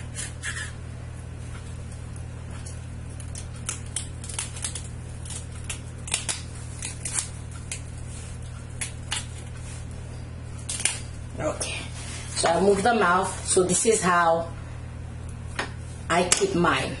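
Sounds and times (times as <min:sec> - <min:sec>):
knife crunching through fish bone: 0:03.1 - 0:09.6, 0:10.6 - 0:11.1.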